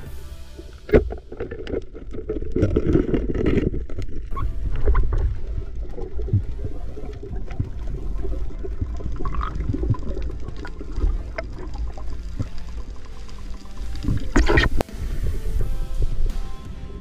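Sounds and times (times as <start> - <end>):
underwater rush of water: 0.0 - 16.4.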